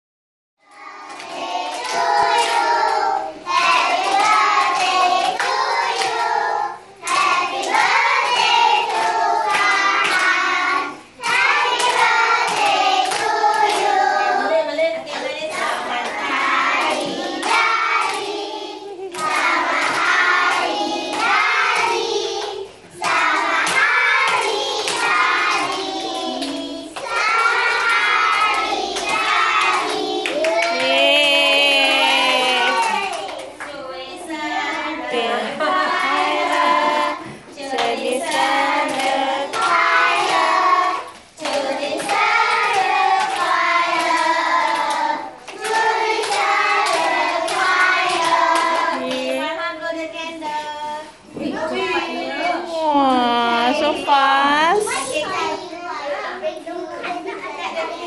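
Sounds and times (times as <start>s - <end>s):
children singing: 0.7s - 14.7s, 15.6s - 30.9s, 34.3s - 49.5s
hand claps: 26.4s - 31.0s, 35.8s - 40.5s.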